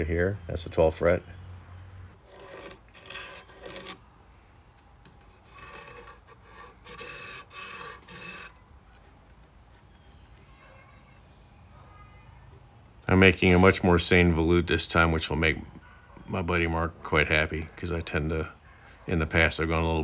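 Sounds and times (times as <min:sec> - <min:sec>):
pencil marking wood: 0:02.2 - 0:04.0, 0:05.0 - 0:09.9
ruler scraping on wood: 0:02.2 - 0:04.0, 0:05.0 - 0:08.6.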